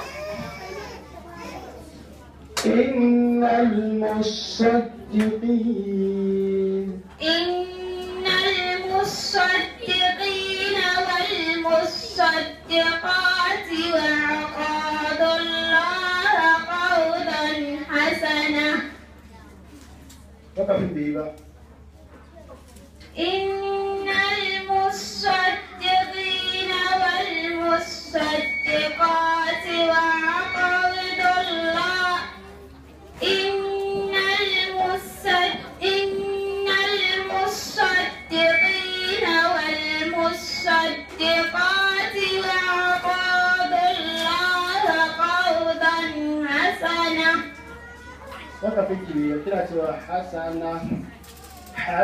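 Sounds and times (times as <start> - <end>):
girl chanting melodically: 23.2 - 32.6, 33.2 - 48.6.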